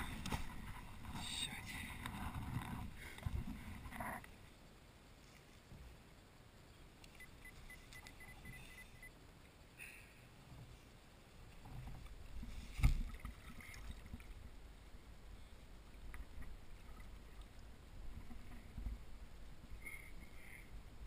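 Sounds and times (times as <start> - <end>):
water lapping against kayak hull: 10.6 - 20.3.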